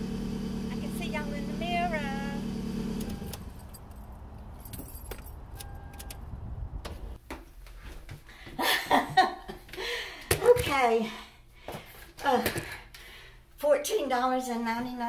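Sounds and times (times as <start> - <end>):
car hum: 0.0 - 7.2
car keys jangling: 3.2 - 6.4
short electronic beep: 5.6 - 6.2.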